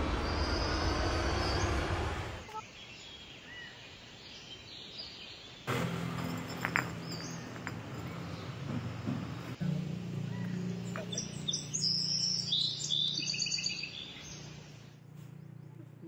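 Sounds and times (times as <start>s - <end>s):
outdoor background noise: 0.0s - 16.0s
glass bottle spinning on stone: 6.1s - 9.0s.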